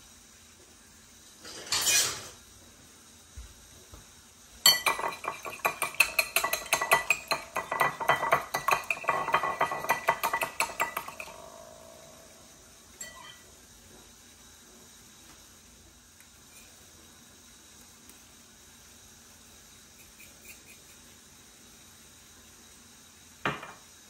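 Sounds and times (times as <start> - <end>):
whisk beating eggs in bowl: 4.7 - 11.6.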